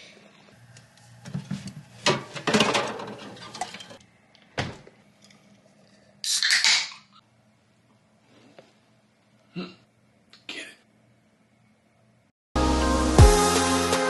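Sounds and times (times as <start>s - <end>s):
cans clinking and rustling: 1.5s - 4.0s.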